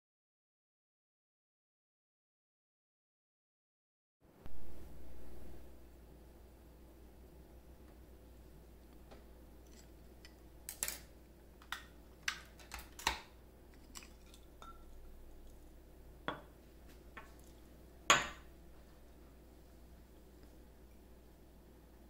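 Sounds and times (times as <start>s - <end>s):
glass beakers clinking: 13.9s - 15.0s
glass set down on stone: 18.1s - 18.4s.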